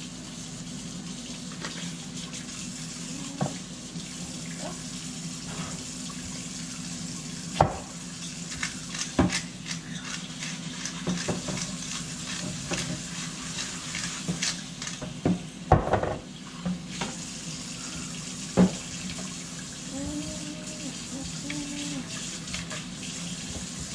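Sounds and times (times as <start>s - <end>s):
cutting board scrubbed in sink: 10.4s - 14.6s.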